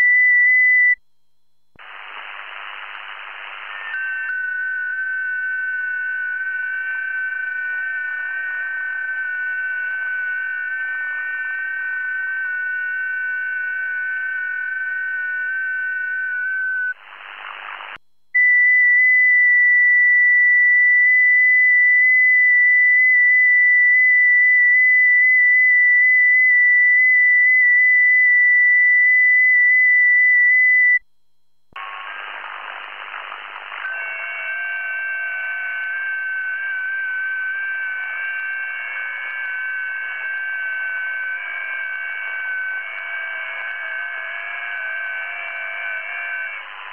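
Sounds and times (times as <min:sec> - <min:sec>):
radio static hiss: 0:01.8 - 0:12.8, 0:13.4 - 0:18.0, 0:31.8 - 0:46.9
single clean tone: 0:03.9 - 0:16.9.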